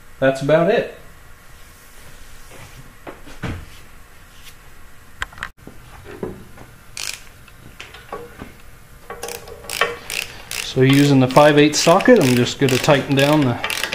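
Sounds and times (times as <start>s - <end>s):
socket wrench set onto bolt: 9.0s - 11.1s
metal parts knocking and clicking: 9.1s - 11.1s, 11.8s - 13.9s.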